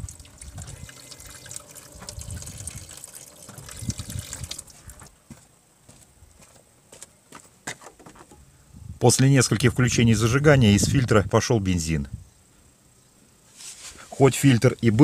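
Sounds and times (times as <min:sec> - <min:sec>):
fuel dripping: 0:00.0 - 0:05.2
petrol pouring and splashing: 0:00.0 - 0:05.2.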